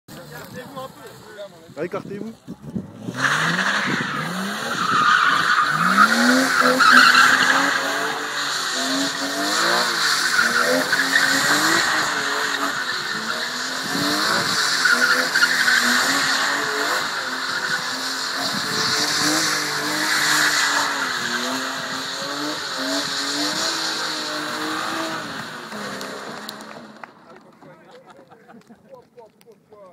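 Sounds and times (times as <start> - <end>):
car engine revving hard: 2.5 - 27.1.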